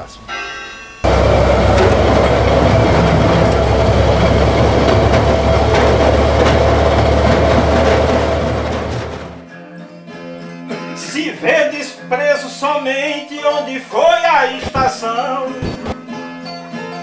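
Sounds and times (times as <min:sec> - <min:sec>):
train rumbling on rails: 0:01.0 - 0:09.4.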